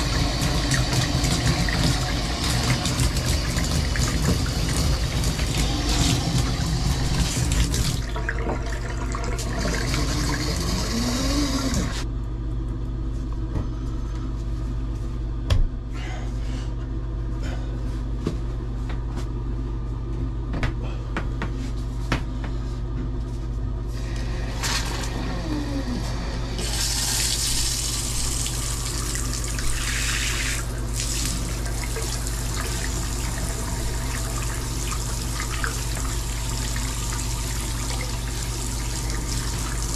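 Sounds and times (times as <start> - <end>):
water splashing into bathtub: 0.0 - 12.0, 26.6 - 39.9
steady low hum: 0.0 - 39.9.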